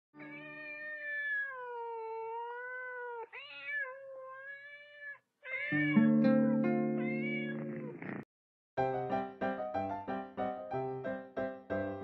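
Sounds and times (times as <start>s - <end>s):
cat meowing: 0.2s - 6.2s, 6.8s - 8.2s.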